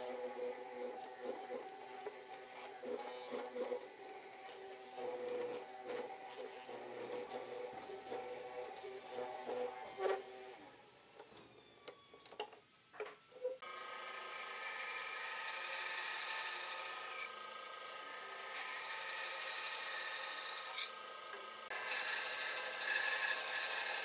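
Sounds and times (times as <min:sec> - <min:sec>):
band saw cutting wood: 0:00.0 - 0:10.8, 0:13.6 - 0:21.0, 0:21.6 - 0:24.0.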